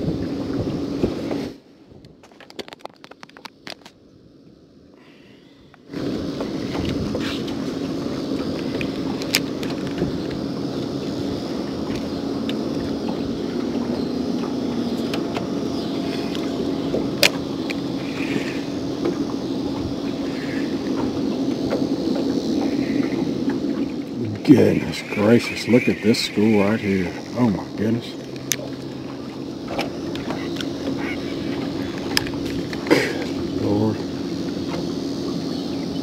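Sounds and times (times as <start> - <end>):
trolling motor humming: 0.0 - 36.0
water noise: 0.0 - 36.0
wind: 0.0 - 36.0
faint clicks: 28.2 - 29.0.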